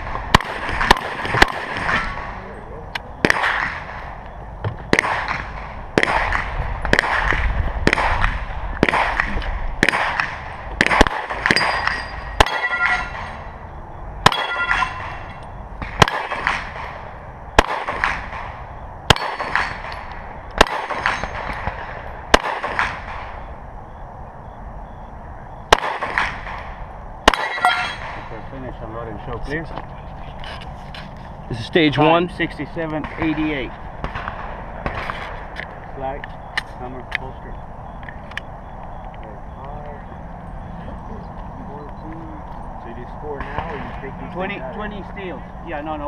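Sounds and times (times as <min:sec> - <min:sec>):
gunshots: 0:00.0 - 0:04.2, 0:04.8 - 0:13.6, 0:14.2 - 0:23.5, 0:25.7 - 0:28.4, 0:32.9 - 0:35.6, 0:43.3 - 0:44.1
metallic ring of steel target: 0:11.2 - 0:13.6, 0:14.2 - 0:16.5, 0:19.1 - 0:20.1, 0:27.3 - 0:28.3.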